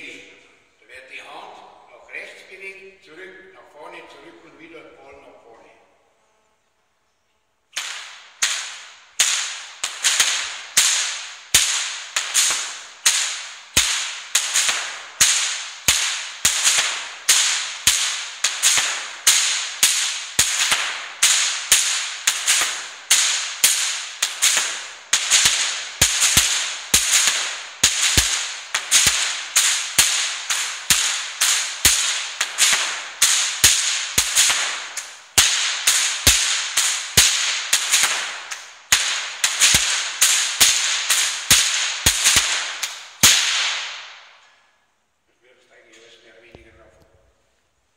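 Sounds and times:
whip cracking: 7.7s - 44.6s.

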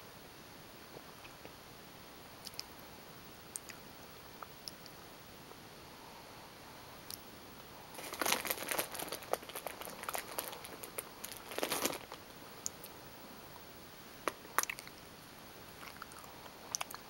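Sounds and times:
plastic bag crinkling: 7.9s - 12.2s.

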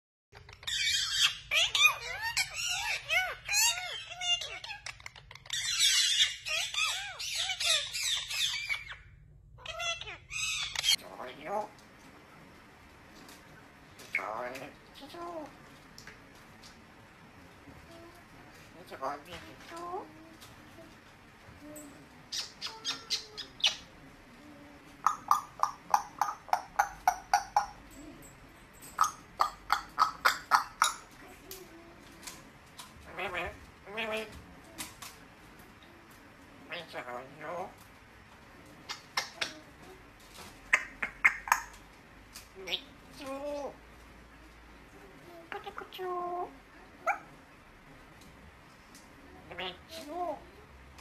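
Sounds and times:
parakeets chirping and squawking: 0.4s - 11.7s, 13.7s - 15.6s, 18.6s - 20.6s, 22.2s - 24.0s, 25.0s - 31.5s, 32.2s - 34.4s, 36.6s - 43.8s, 49.4s - 50.4s.

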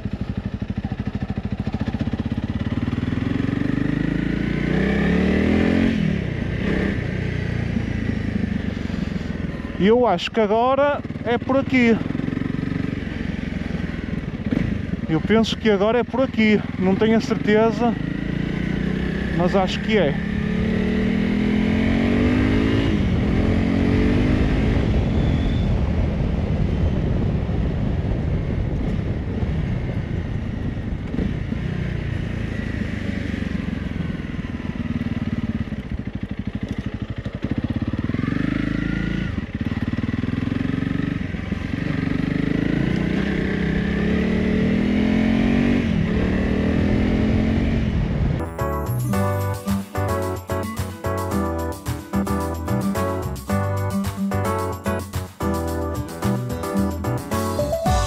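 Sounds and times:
motorcycle engine running: 0.0s - 58.0s
wind noise: 24.3s - 31.6s.

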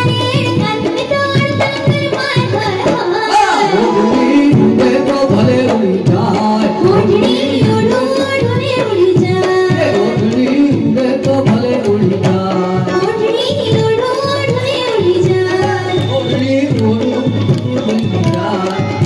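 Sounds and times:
tabla and dholak rhythm: 0.0s - 19.0s
man singing into microphone: 3.3s - 8.1s, 9.6s - 13.0s, 16.1s - 19.0s.

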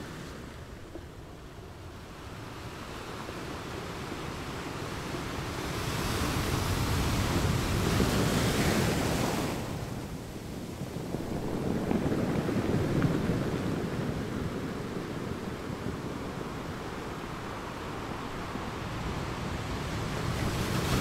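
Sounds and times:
wind buffeting microphone: 0.1s - 21.0s
surf washing onto beach: 2.3s - 21.0s.

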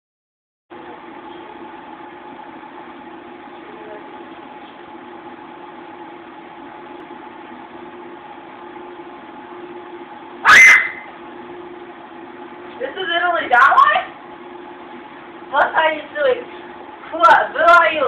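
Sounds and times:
steady low hum: 0.7s - 18.0s.

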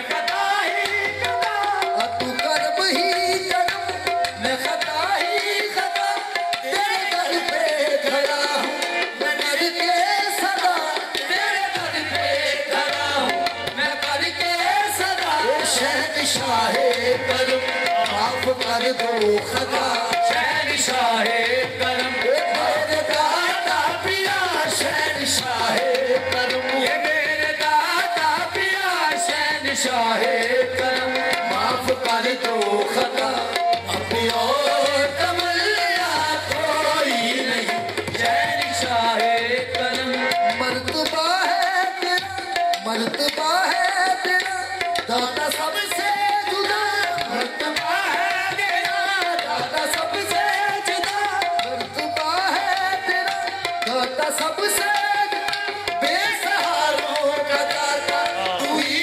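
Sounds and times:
harmonium: 0.0s - 59.0s
people singing: 0.0s - 59.0s
tabla: 0.0s - 59.0s.

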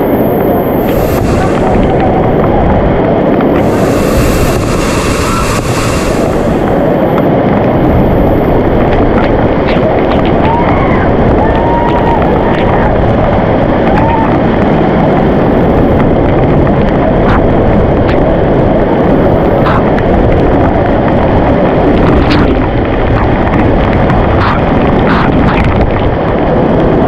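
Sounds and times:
waterfall roaring: 0.1s - 17.4s.

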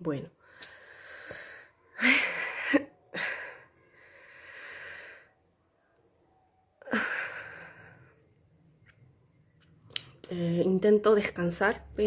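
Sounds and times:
woman breathing heavily: 0.4s - 5.6s, 6.8s - 8.4s.

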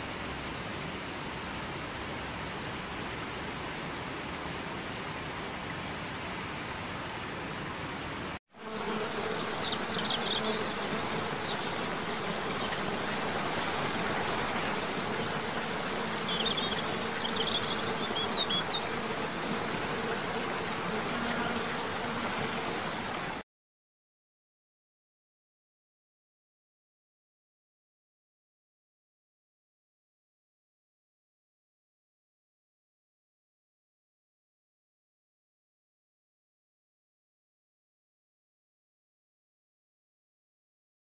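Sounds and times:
river running over rocks: 0.0s - 8.4s, 9.3s - 21.1s
insect buzz: 8.5s - 23.4s.

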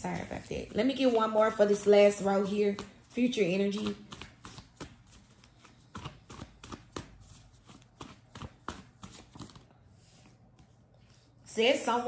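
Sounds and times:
cards being shuffled: 2.7s - 10.7s.

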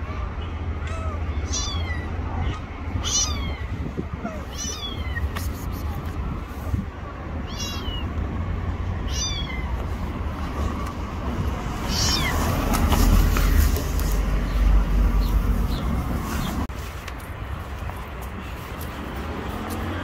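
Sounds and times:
cat meowing: 0.8s - 5.4s, 7.4s - 8.1s, 9.0s - 9.7s, 11.8s - 12.4s.

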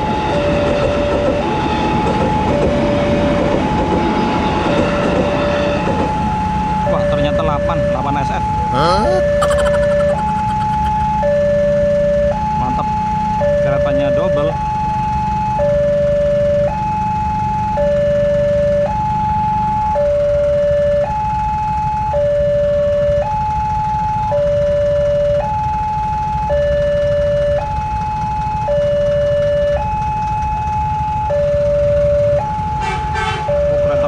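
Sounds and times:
two-tone crossing alarm: 9.2s - 34.0s.

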